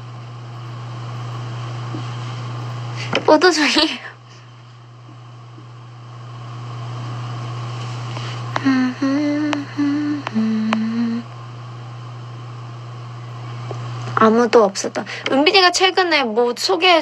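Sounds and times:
steady low hum: 0.0s - 17.0s
woman humming a tune: 8.5s - 11.3s.

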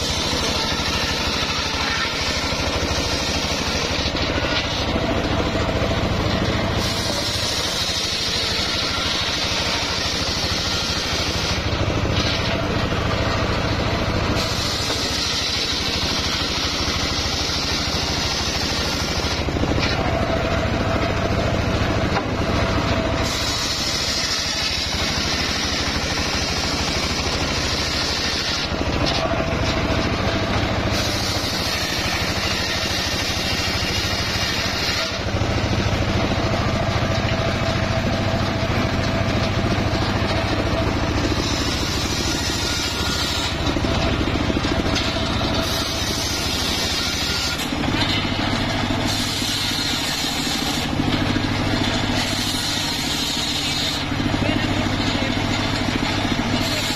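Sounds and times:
sawmill engine running: 0.0s - 56.9s
saw blade cutting log hiss: 6.8s - 11.7s, 30.9s - 35.3s, 48.9s - 54.1s.

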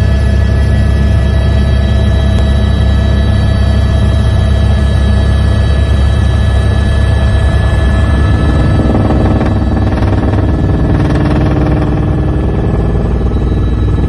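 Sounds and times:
helicopter rotor drone: 0.0s - 14.0s
high whine: 0.0s - 14.0s.

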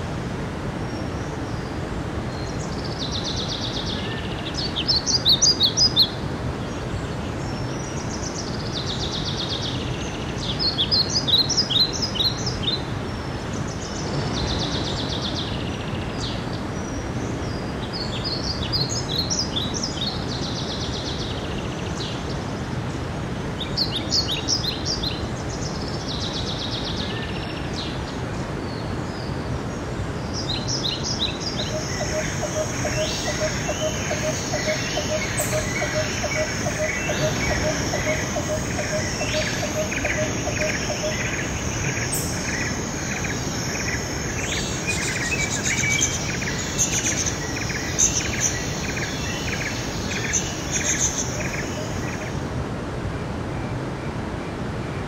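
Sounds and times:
birds chirping and trilling: 30.3s - 52.4s
bird repeating low note: 31.6s - 44.8s.

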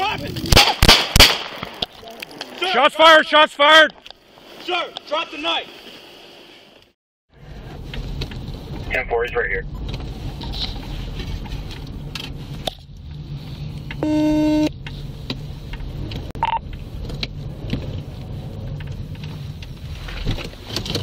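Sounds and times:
buzzing electronic alert tone: 14.0s - 14.7s
short high beep: 14.0s - 14.7s.

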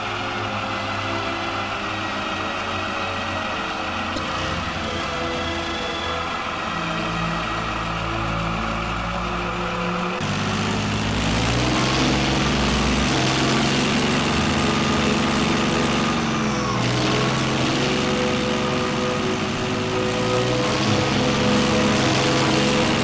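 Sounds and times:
heavy engine running: 0.0s - 23.0s.

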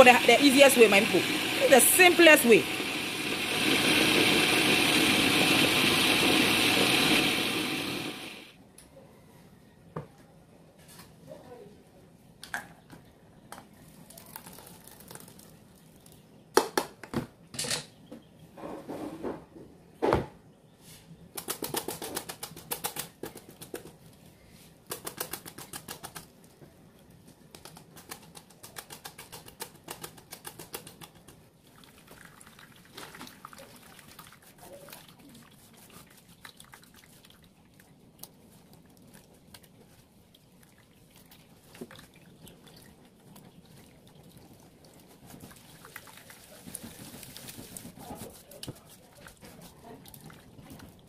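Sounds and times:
scratchy rubbing against mesh sieve: 35.3s - 37.2s, 46.4s - 50.0s.

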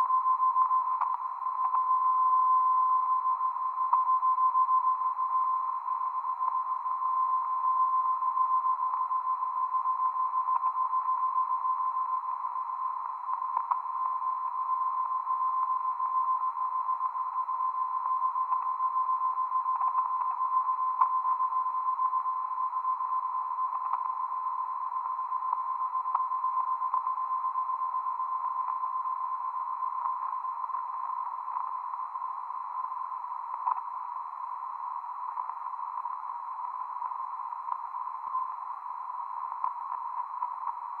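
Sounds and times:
whistle-like radio tone: 0.0s - 41.0s
faint clicks: 0.9s - 1.8s, 13.3s - 14.2s, 33.5s - 33.9s, 37.0s - 38.4s, 39.4s - 41.0s
radio receiver hiss: 26.9s - 41.0s.

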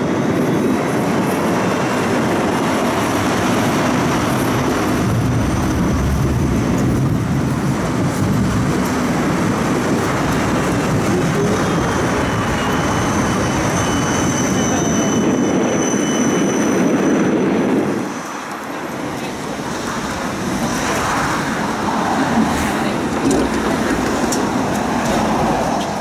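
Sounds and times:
tram rumbling on rails: 0.0s - 26.0s
high squeal of tram wheels: 11.1s - 19.4s.

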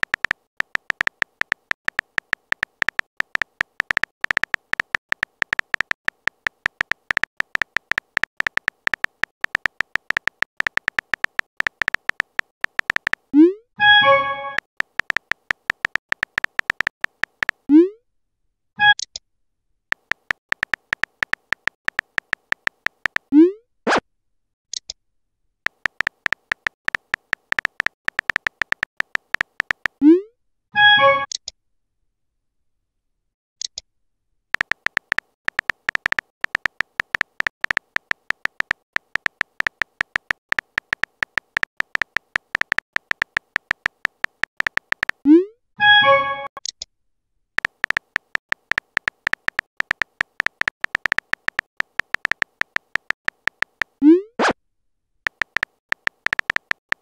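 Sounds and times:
phone keyboard taps: 0.0s - 13.3s, 14.5s - 17.6s, 19.9s - 23.3s, 25.7s - 30.0s, 34.6s - 45.2s, 47.6s - 54.0s, 55.3s - 57.0s
incoming message chime: 13.8s - 14.6s.

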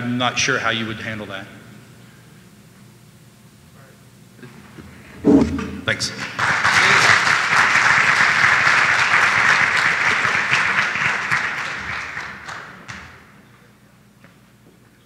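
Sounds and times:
audience applauding: 5.9s - 13.4s.

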